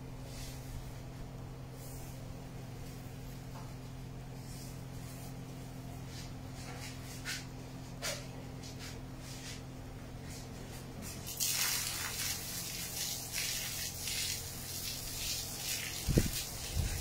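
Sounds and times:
low steady hum: 0.0s - 17.0s
garden hose spraying water: 11.0s - 17.0s.

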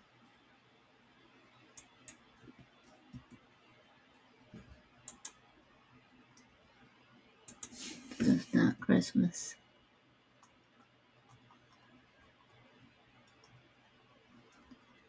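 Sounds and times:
computer mouse clicks: 1.7s - 3.4s, 4.5s - 5.5s, 7.4s - 7.9s, 10.4s - 12.6s, 13.2s - 13.7s, 14.4s - 15.0s.

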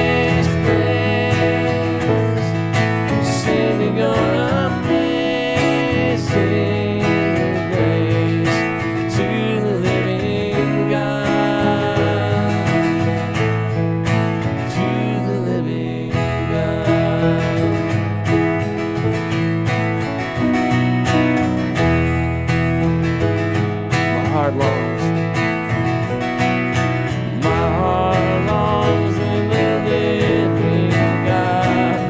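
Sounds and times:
person singing: 0.0s - 13.7s, 14.4s - 18.6s, 24.0s - 25.2s, 27.1s - 32.0s
strummed acoustic guitar: 0.0s - 32.0s.

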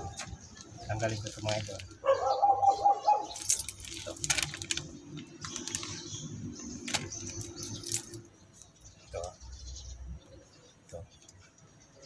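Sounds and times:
plastic bag crinkling: 1.0s - 2.0s, 3.6s - 7.5s.

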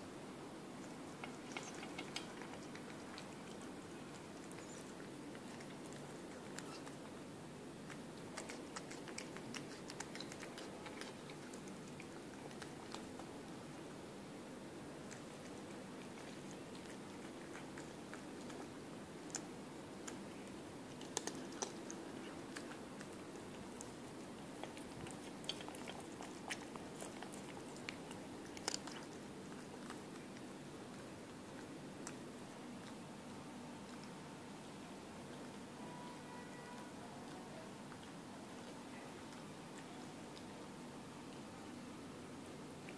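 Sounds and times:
cat licking and chewing food: 0.0s - 42.9s.

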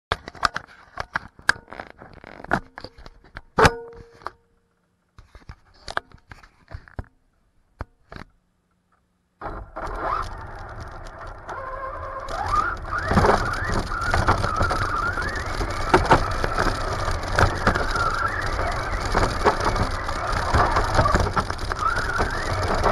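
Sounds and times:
toy truck motor whining: 9.5s - 22.9s.

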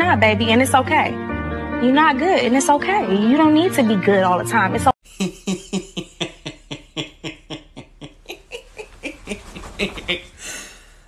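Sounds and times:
man laughing hard: 5.0s - 10.4s
breathy noise: 7.0s - 11.0s.

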